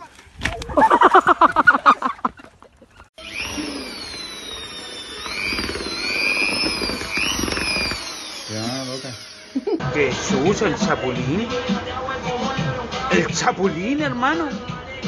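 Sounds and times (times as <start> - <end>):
electric drill mixing paddle whine: 3.2 - 9.8.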